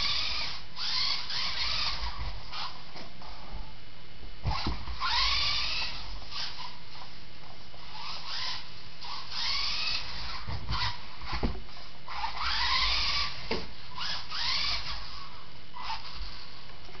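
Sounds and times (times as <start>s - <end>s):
model car electric motor whining: 0.0s - 2.8s, 4.5s - 7.0s, 7.8s - 11.4s, 12.1s - 16.6s.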